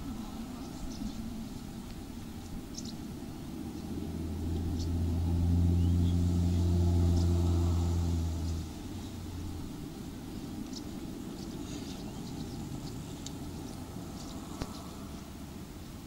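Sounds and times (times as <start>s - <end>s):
low engine hum: 0.0s - 16.0s
faint bird chirps: 10.6s - 15.3s.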